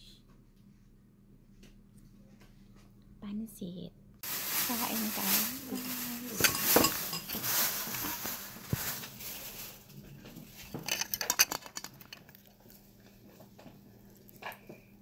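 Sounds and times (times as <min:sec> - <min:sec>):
chopsticks and bowls clinking: 0:05.4 - 0:08.4.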